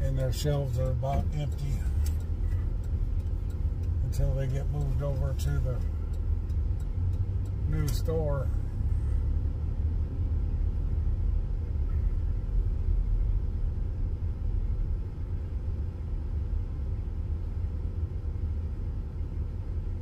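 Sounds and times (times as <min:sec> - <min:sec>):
car interior driving rumble: 0:00.0 - 0:20.0.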